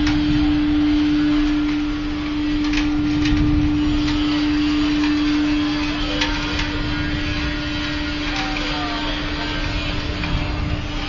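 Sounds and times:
burner air and flame rushing: 0.0s - 11.0s
constant hum: 0.0s - 11.0s.

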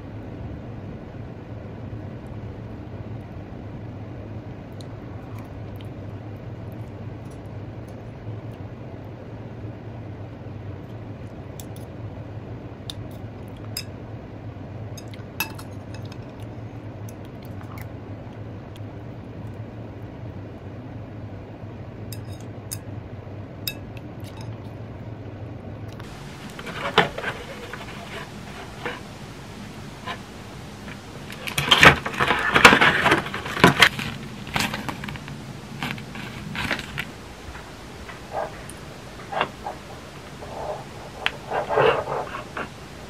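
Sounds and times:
steady low hum: 0.0s - 43.0s
chopsticks clinking on ceramic plate: 15.0s - 16.4s, 22.2s - 22.8s, 23.7s - 24.6s
cardboard box rustling: 26.0s - 42.8s.

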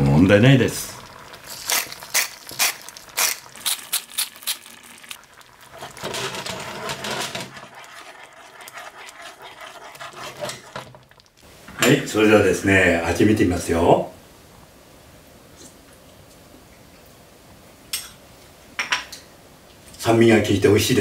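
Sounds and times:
sauce stirred in pan: 0.8s - 11.5s
pepper mill grinding: 1.4s - 5.2s.

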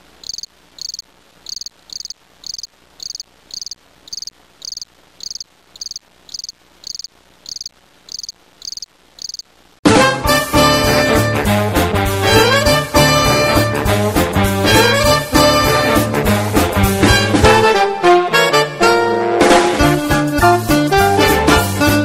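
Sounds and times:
crickets chirping: 0.0s - 9.6s.

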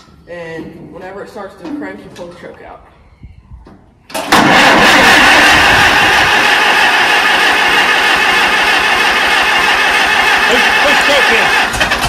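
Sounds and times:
tractor engine cranking: 4.1s - 12.0s.

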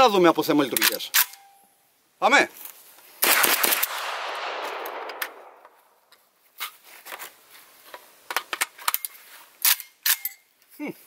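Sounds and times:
gunshot echo: 3.2s - 6.0s
metallic gun clicks and rattles: 8.3s - 10.5s.

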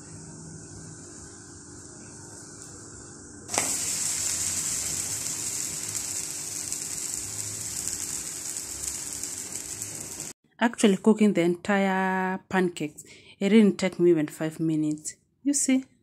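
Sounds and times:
pancake sizzling in a pan: 3.5s - 10.4s.

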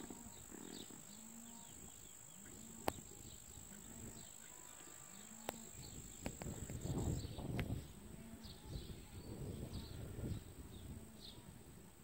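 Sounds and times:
insects buzzing: 0.0s - 8.6s.

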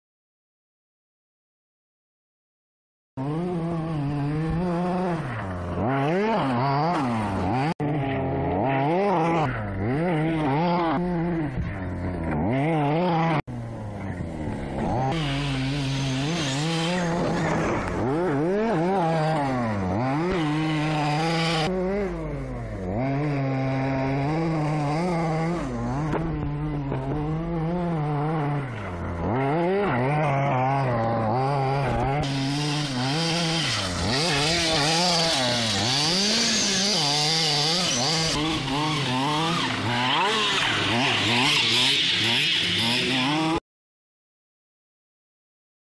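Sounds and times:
rc car engine revving: 3.2s - 43.6s.

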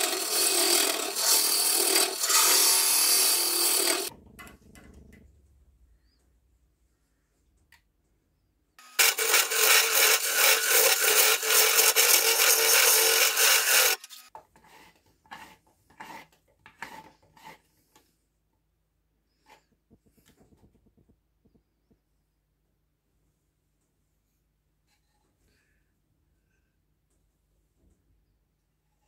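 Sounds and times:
lathe tool cutting wood: 0.0s - 4.1s, 8.8s - 14.3s
tool scraping and tapping wood: 13.9s - 18.2s.

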